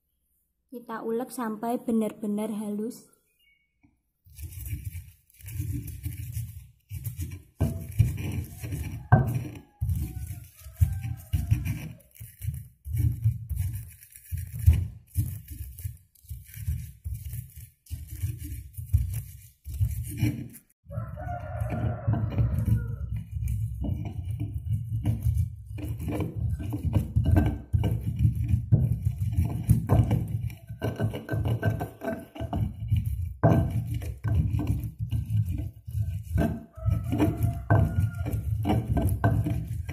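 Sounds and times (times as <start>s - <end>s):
stone pestle pounding in mortar: 4.4s - 20.4s, 21.0s - 39.9s
rooster crowing: 8.4s - 12.2s, 20.9s - 23.1s, 36.7s - 39.4s.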